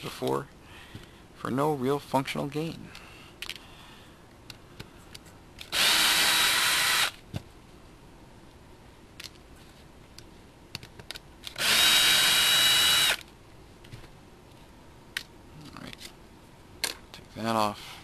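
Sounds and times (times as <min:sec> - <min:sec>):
small handling clicks: 0:02.7 - 0:03.6
cordless drill running: 0:05.7 - 0:07.2, 0:11.6 - 0:13.2.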